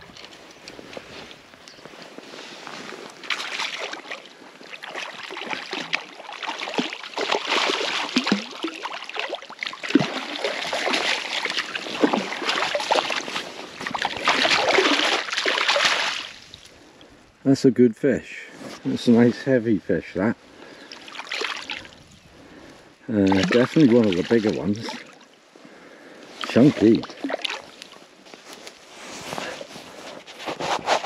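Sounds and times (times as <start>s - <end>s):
fish splashing in water: 3.2s - 16.6s, 20.8s - 22.0s, 23.2s - 25.2s, 26.4s - 27.8s.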